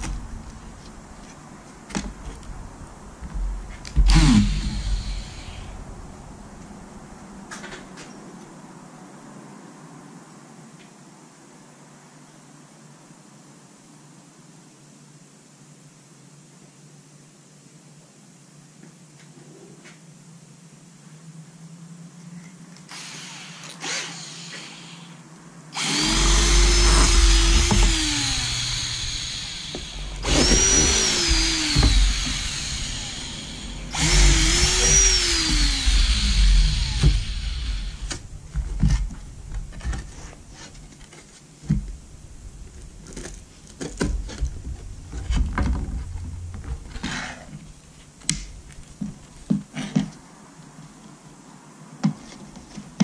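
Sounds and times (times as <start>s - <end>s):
cordless drill drilling wood: 4.0s - 5.7s, 22.9s - 25.2s, 25.8s - 38.2s.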